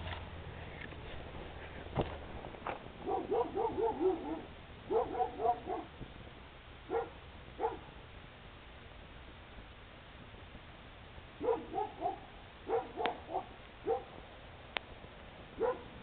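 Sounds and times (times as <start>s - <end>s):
dog barking: 3.0s - 6.0s, 6.9s - 7.9s, 11.4s - 14.2s, 15.6s - 16.0s.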